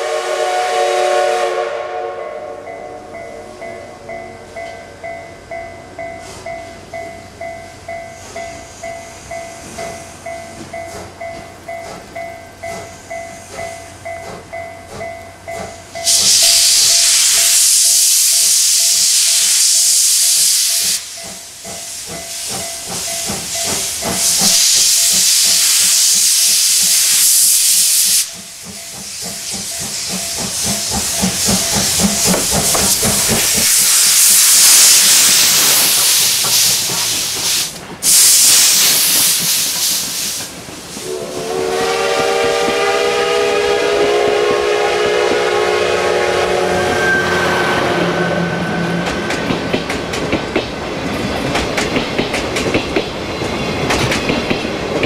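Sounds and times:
steam locomotive exhaust chuffs: 0:00.0 - 0:02.9, 0:06.0 - 0:55.0
loud hiss of steam: 0:15.9 - 0:55.0.

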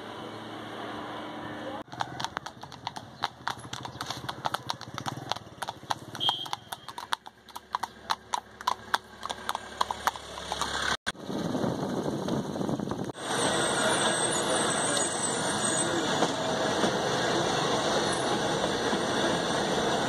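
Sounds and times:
hooves clip-clopping on asphalt: 0:01.8 - 0:11.0.

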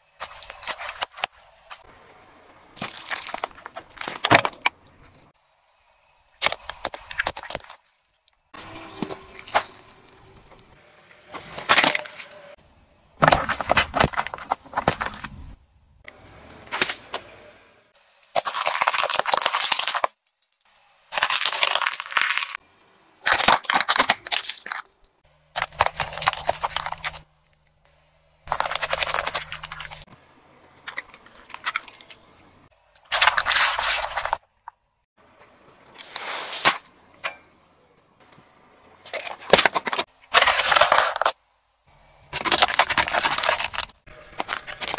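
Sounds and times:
tyre crushing plastic items: 0:00.2 - 0:01.9, 0:02.7 - 0:05.2, 0:13.2 - 0:15.6, 0:18.4 - 0:20.2, 0:21.1 - 0:22.6, 0:23.2 - 0:27.3, 0:28.5 - 0:30.1, 0:33.1 - 0:34.4, 0:39.1 - 0:41.4, 0:42.3 - 0:44.9.

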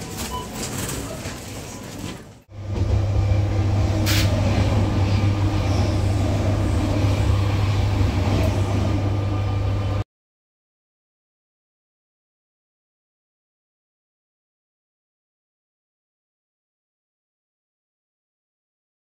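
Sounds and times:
supermarket checkout noise: 0:00.0 - 0:02.4
train rumble inside carriage: 0:00.0 - 0:10.0
brief hiss: 0:04.1 - 0:04.4.

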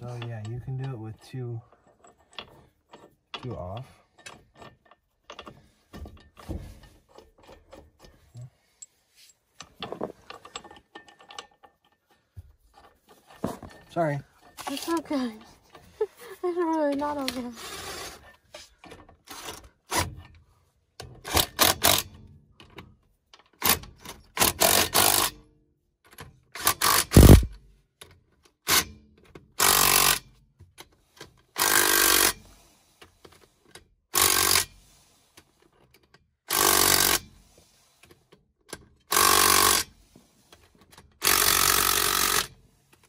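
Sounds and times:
metal clanks and knocks: 0:00.0 - 0:08.5, 0:09.6 - 0:15.9
impact wrench bursts: 0:21.2 - 0:22.1, 0:24.4 - 0:25.4, 0:26.6 - 0:27.5, 0:29.6 - 0:30.3, 0:31.6 - 0:32.6, 0:34.1 - 0:34.9, 0:36.5 - 0:37.5, 0:39.1 - 0:40.0, 0:41.2 - 0:42.6.

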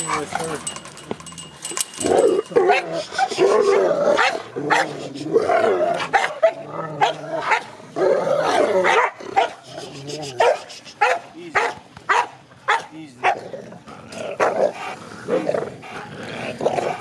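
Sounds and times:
dog barking: 0:06.1 - 0:07.7, 0:08.8 - 0:09.6, 0:10.4 - 0:13.4.

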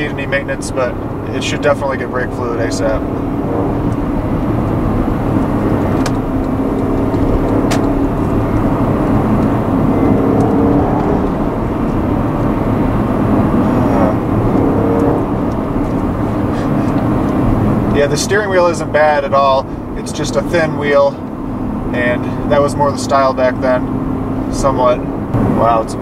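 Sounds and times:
car engine and road noise: 0:00.0 - 0:26.0.

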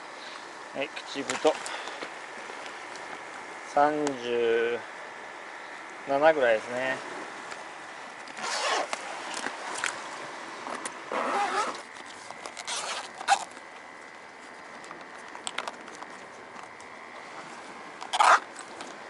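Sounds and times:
case unzipping: 0:08.3 - 0:09.9, 0:10.8 - 0:13.6, 0:18.1 - 0:18.5.

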